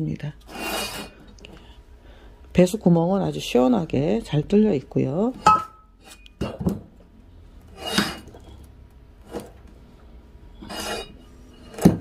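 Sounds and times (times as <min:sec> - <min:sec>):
ceramic pot scraping on wood: 0:00.4 - 0:01.3, 0:07.7 - 0:09.9, 0:10.5 - 0:12.0.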